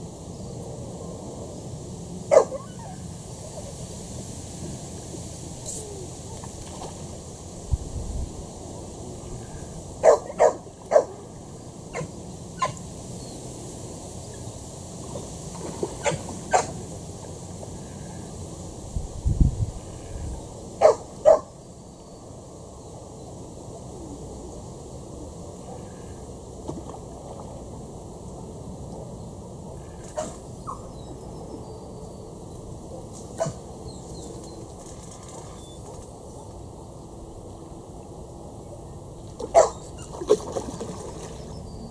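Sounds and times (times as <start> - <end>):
wind noise on microphone: 0.0 - 10.0, 18.5 - 20.7
outdoor background noise: 0.0 - 41.9
bark-like animal calls: 2.3 - 3.0, 10.0 - 11.1, 11.9 - 12.8, 20.8 - 21.5, 39.5 - 39.9.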